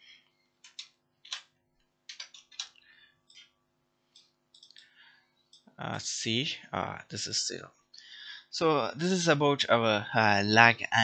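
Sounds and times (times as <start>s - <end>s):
keyboard keystrokes clicking: 0.6s - 1.5s, 2.1s - 3.4s.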